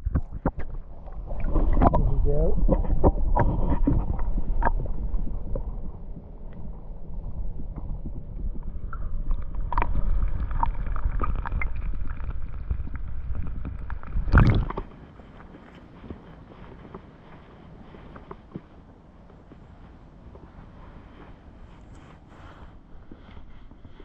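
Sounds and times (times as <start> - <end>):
water clicks and gurgles: 0.0 - 21.1
underwater low rumble: 0.0 - 24.0
loud splash: 14.2 - 14.8.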